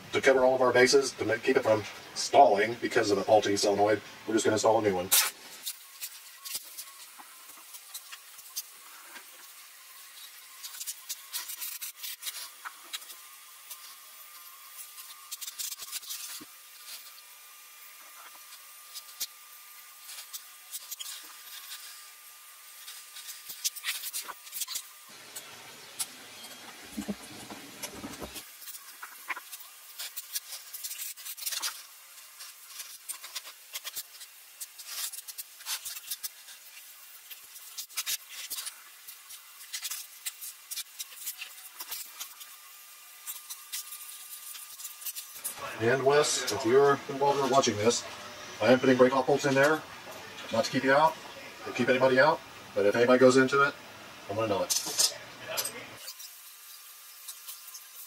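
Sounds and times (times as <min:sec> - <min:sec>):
rustling and rubbing: 0:26.6 - 0:45.5.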